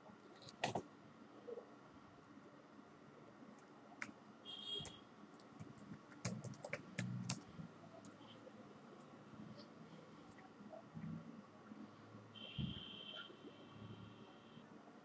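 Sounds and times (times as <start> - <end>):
keyboard typing: 0.4 - 0.8, 4.8 - 8.2.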